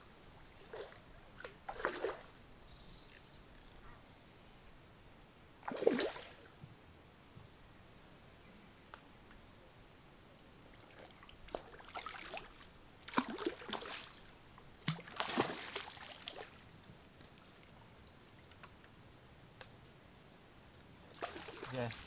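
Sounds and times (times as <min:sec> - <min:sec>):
fish splashing in water: 0:05.6 - 0:06.4, 0:11.5 - 0:14.2, 0:14.9 - 0:16.6, 0:21.2 - 0:22.0.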